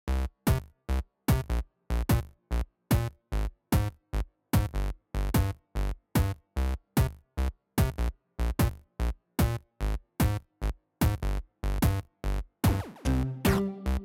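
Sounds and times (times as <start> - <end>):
electronic music with chopped beat: 12.6 - 14.0.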